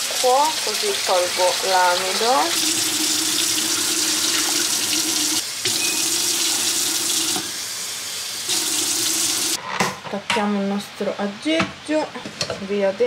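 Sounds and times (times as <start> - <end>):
tap water running into pot: 0.0 - 7.6, 8.4 - 9.6.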